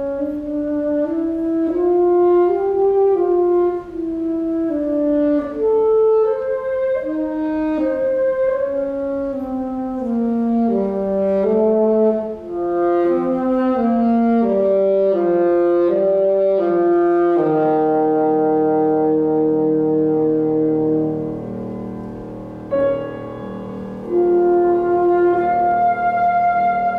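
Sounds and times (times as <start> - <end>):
low accompaniment: 0.0 - 26.9
saxophone slow melody: 0.0 - 26.9
sustained chord: 20.4 - 26.9.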